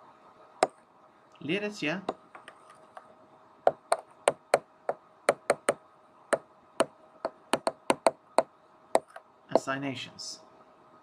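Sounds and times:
faint steady hum: 0:00.0 - 0:11.0
stylus tapping on tablet: 0:03.7 - 0:04.6, 0:05.3 - 0:05.8, 0:06.8 - 0:08.2, 0:09.0 - 0:09.7.

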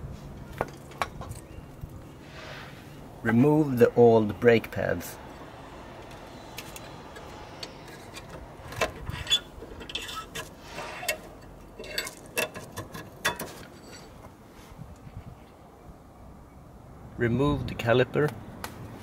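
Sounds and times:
metal scrapes: 0:02.2 - 0:03.0, 0:05.3 - 0:14.7.

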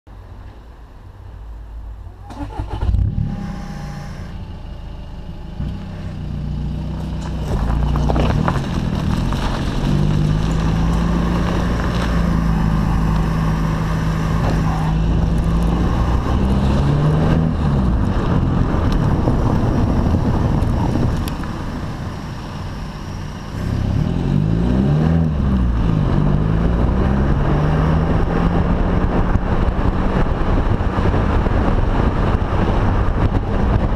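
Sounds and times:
diesel car engine driving off: 0:01.9 - 0:33.9.

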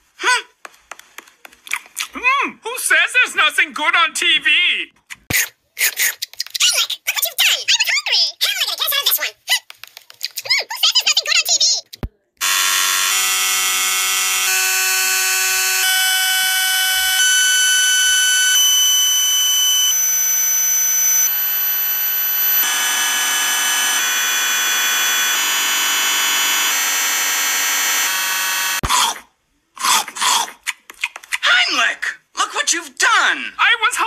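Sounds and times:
harsh distorted electronic buzz: 0:12.4 - 0:28.9.

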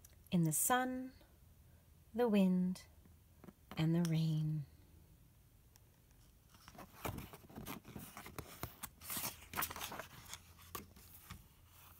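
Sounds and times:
book pages rustling: 0:06.1 - 0:11.9.

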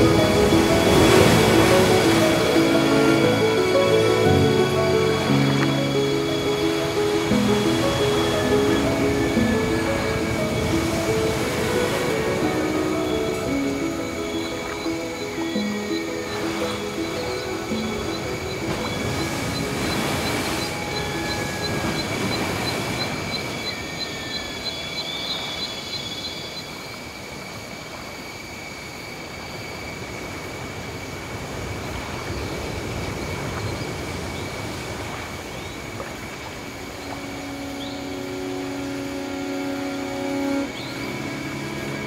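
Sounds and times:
noisy ambience: 0:00.0 - 0:42.0.

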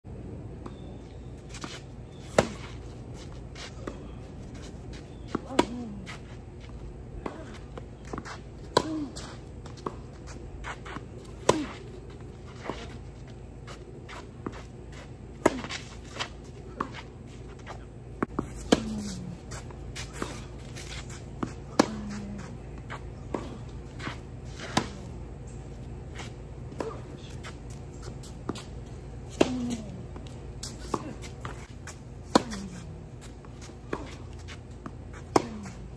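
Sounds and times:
low background hum: 0:00.1 - 0:35.9
tennis ball bouncing: 0:02.3 - 0:02.7, 0:04.9 - 0:06.2, 0:07.2 - 0:12.9, 0:13.6 - 0:25.2, 0:26.7 - 0:35.9
tennis racquets striking ball: 0:02.3 - 0:02.8, 0:05.2 - 0:06.1, 0:07.2 - 0:10.1, 0:18.2 - 0:25.2, 0:26.7 - 0:35.9.

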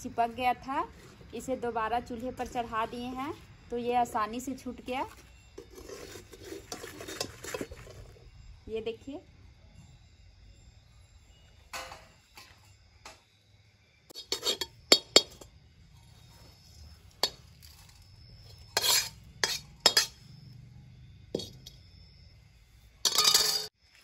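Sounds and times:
metal spatula scraping steel pan: 0:05.1 - 0:08.2, 0:14.1 - 0:20.3, 0:21.4 - 0:21.7, 0:23.0 - 0:23.7.

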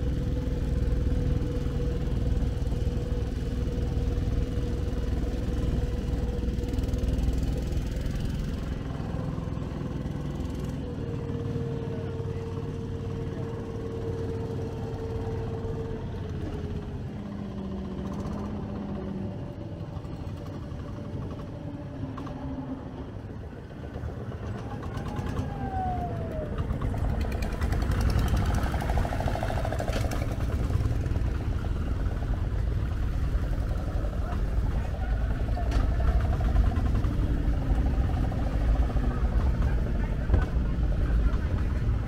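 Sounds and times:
boat engine rumbling: 0:00.0 - 0:42.0.

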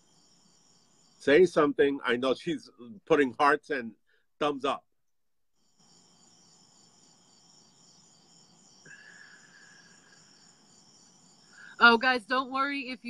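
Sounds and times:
high-pitched pulsing insect chirr: 0:00.0 - 0:02.4, 0:05.6 - 0:13.0
faint steady tone: 0:00.0 - 0:04.2, 0:05.6 - 0:13.0.

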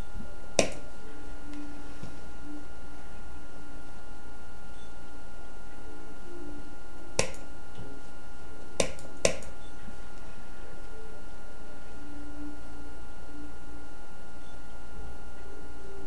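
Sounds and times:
faint hum: 0:00.0 - 0:16.0
computer mouse clicks: 0:07.2 - 0:07.5.

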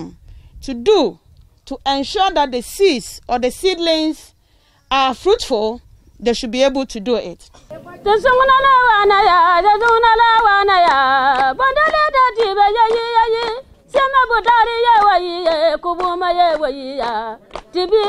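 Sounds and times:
hands clapping: 0:09.8 - 0:18.0.

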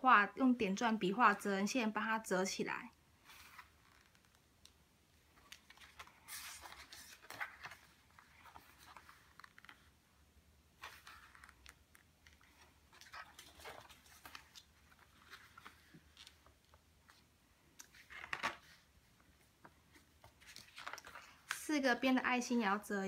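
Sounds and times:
cardstock rustling and crinkling: 0:05.2 - 0:10.0, 0:10.8 - 0:21.7.

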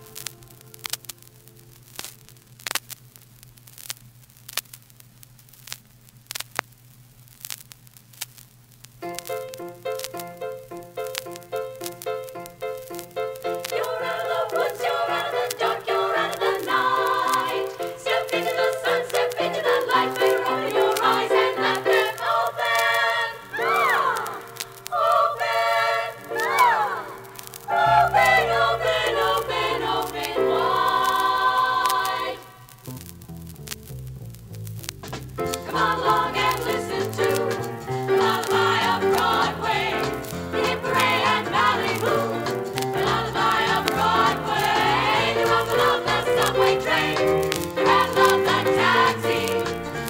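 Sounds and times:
vinyl clicks and pops: 0:00.0 - 0:50.0
women singing close harmony: 0:13.6 - 0:32.6, 0:35.6 - 0:49.8
swooping vocal glides: 0:13.7 - 0:32.7, 0:35.4 - 0:50.0.

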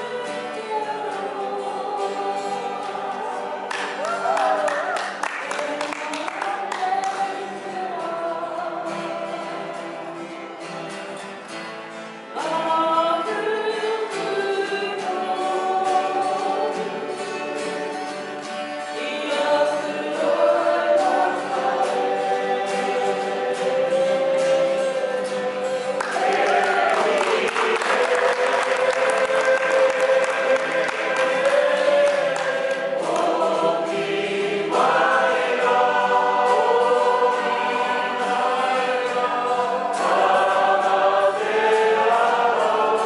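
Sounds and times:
group singing in harmony: 0:00.0 - 0:11.3, 0:12.3 - 0:43.0
acoustic guitars strumming: 0:00.0 - 0:43.0
applause: 0:03.7 - 0:07.4, 0:26.0 - 0:33.3.

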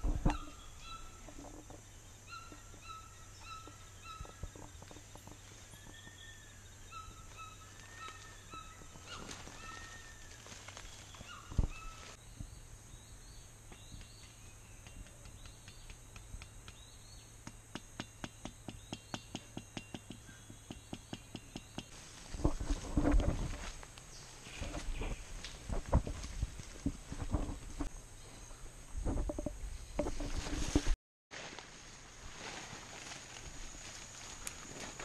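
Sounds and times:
birds whistling calls: 0:05.7 - 0:10.4
footsteps on dry leaves: 0:07.2 - 0:12.2, 0:30.2 - 0:35.0.

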